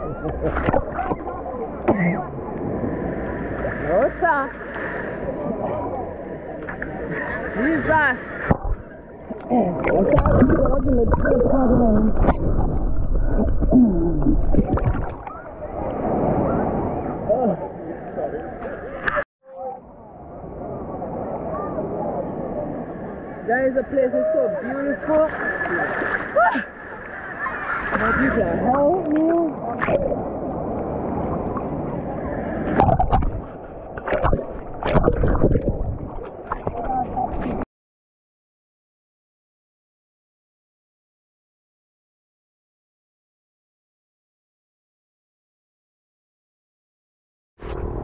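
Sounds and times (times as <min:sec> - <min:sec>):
sea water sloshing: 0:00.0 - 0:04.0, 0:06.6 - 0:17.2, 0:25.0 - 0:37.6.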